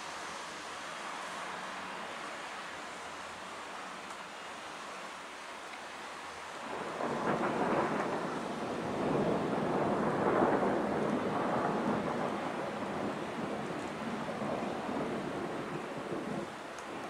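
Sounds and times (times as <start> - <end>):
thunder rumble: 6.7 - 16.6.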